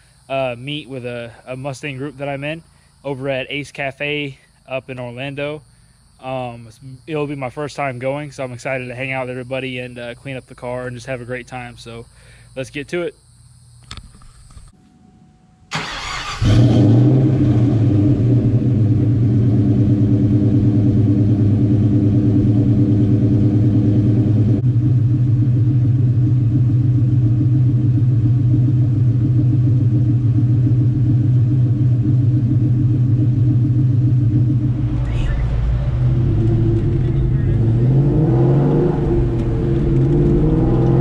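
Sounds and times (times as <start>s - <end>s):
car engine starting and idling: 15.7s - 41.0s.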